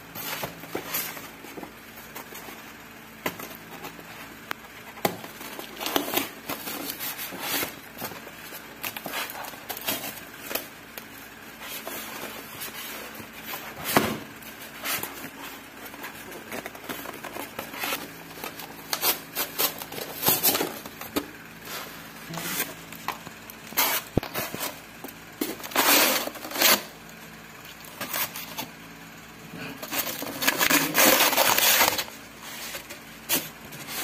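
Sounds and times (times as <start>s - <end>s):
plastic rustling: 0.0s - 27.1s, 29.6s - 34.0s
tape peeling off a box: 14.6s - 24.8s, 25.5s - 27.0s, 29.8s - 34.0s.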